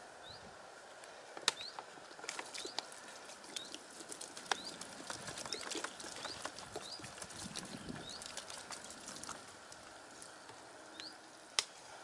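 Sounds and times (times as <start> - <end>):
bird chirping: 0.2 - 0.5, 1.5 - 1.8, 4.5 - 7.2, 7.8 - 8.4, 10.3 - 11.3
water pouring and splashing: 2.1 - 10.4.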